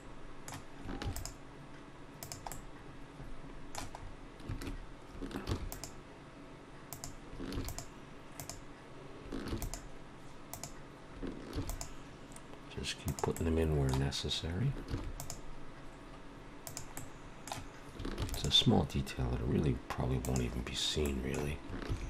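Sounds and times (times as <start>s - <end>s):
keyboard keystrokes: 0.5s - 1.4s, 2.2s - 2.6s, 3.7s - 6.0s, 6.9s - 8.6s, 9.3s - 9.9s, 10.5s - 10.8s, 11.5s - 11.9s, 13.0s - 14.1s, 14.9s - 15.4s, 16.6s - 18.6s, 20.2s - 22.0s
mouse clicks: 2.2s - 2.6s, 5.4s - 6.0s, 6.9s - 8.6s, 10.5s - 10.8s, 11.6s - 12.0s, 15.2s - 15.4s, 16.6s - 17.7s.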